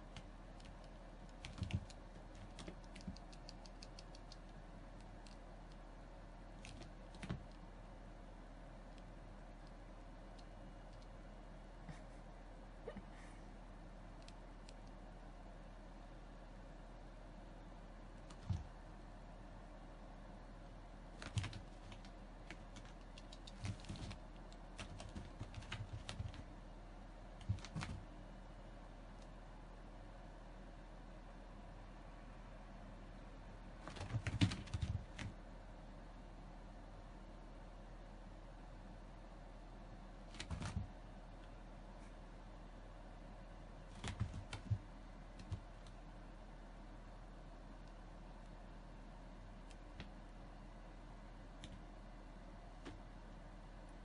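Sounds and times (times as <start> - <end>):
claws clicking on carpet: 0.0 - 5.9, 21.2 - 26.5, 43.9 - 46.0.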